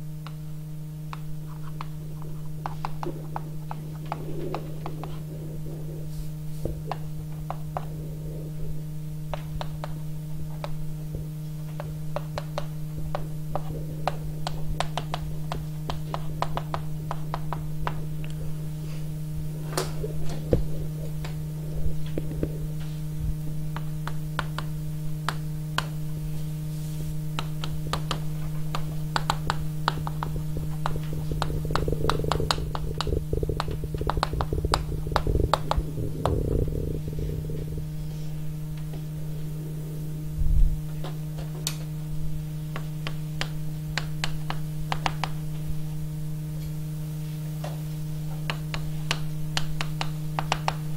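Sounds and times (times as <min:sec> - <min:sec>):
low hum: 0:00.0 - 0:50.9
small clicks and taps: 0:23.7 - 0:26.0, 0:27.4 - 0:36.8, 0:42.7 - 0:45.4, 0:47.6 - 0:50.9.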